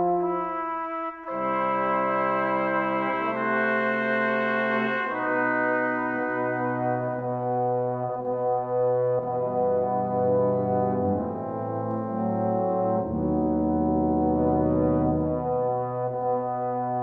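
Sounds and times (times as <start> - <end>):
slow instrumental music: 0.0 - 17.0.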